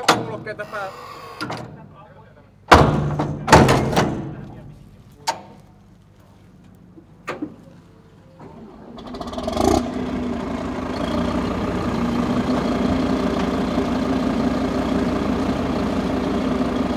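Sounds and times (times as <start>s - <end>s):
diesel engine starting up: 8.4s - 16.9s.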